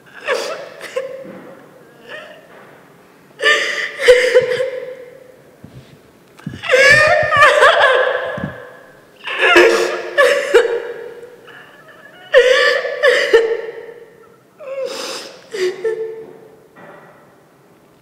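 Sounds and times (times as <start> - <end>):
woman sobbing: 1.9 - 2.5, 3.4 - 5.3, 6.4 - 16.3.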